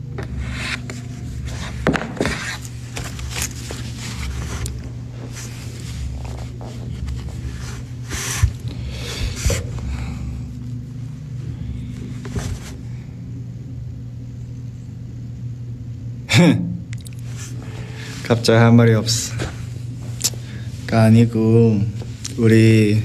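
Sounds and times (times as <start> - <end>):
steady low hum: 0.0 - 23.0
clothing rustling: 0.2 - 13.1.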